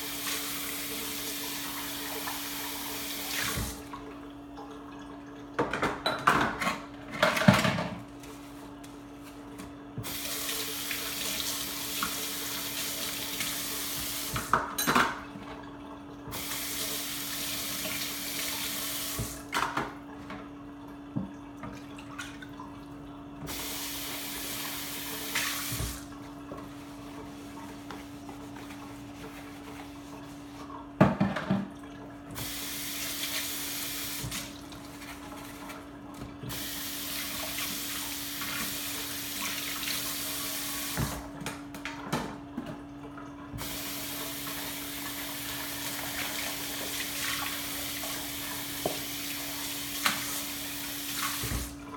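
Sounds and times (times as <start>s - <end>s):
faucet running into steel sink: 0.0s - 3.9s, 10.0s - 15.2s, 16.3s - 19.5s, 23.4s - 26.1s, 32.4s - 34.8s, 36.5s - 41.3s, 43.5s - 51.8s.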